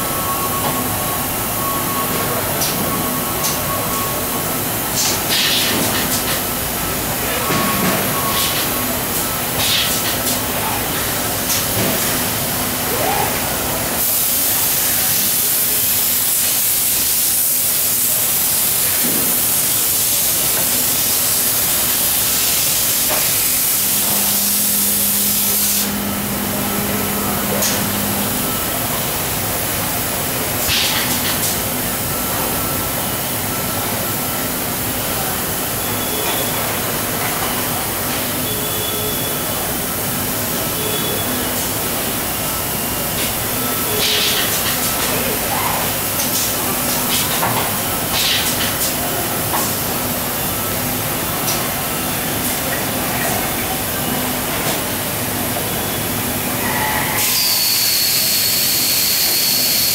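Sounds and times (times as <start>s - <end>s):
machine noise: 20.4s - 59.9s.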